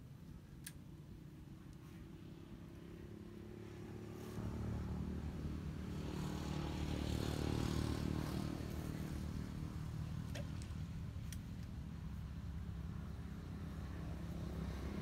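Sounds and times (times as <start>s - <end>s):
small engine passing by: 2.4s - 10.3s.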